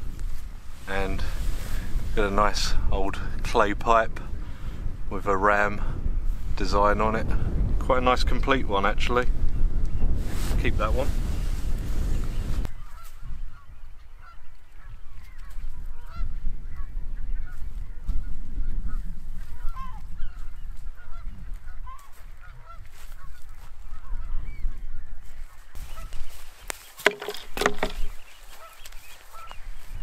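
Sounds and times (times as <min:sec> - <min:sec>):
wind buffeting microphone: 0:00.0 - 0:30.0
geese honking: 0:14.2 - 0:14.9, 0:21.0 - 0:24.3, 0:25.8 - 0:26.3, 0:27.1 - 0:29.6
knocks: 0:27.0 - 0:28.0.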